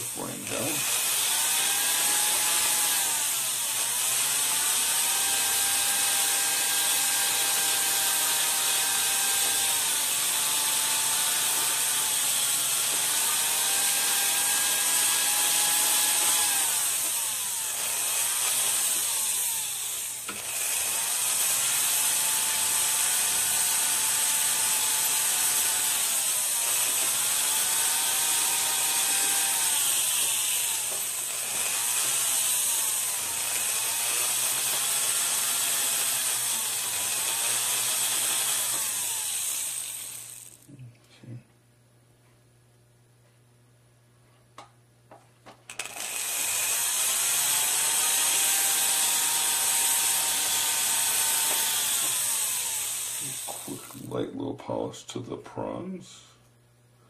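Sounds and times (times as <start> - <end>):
rotary tool whining: 0.0 - 40.7, 45.7 - 54.1.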